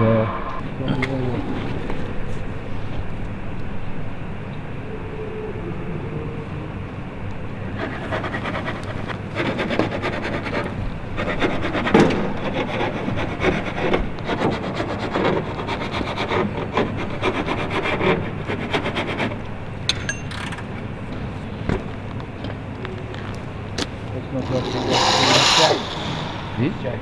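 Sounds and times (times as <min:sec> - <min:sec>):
high metallic squeak: 0:24.3 - 0:26.6.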